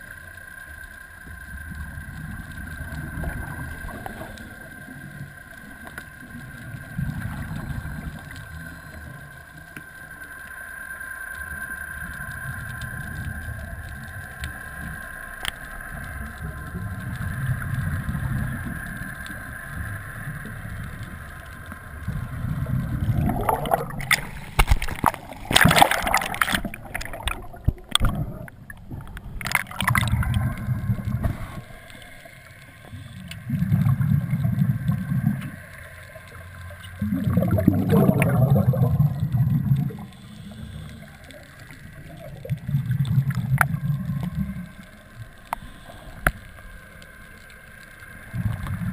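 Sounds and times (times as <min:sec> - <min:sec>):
faint steady tone: 0:00.0 - 0:48.9
water splashing and sloshing: 0:12.1 - 0:48.9
diver exhaling bubbles underwater: 0:22.1 - 0:32.2, 0:33.4 - 0:35.6, 0:37.0 - 0:41.2, 0:42.0 - 0:44.8, 0:48.3 - 0:48.9.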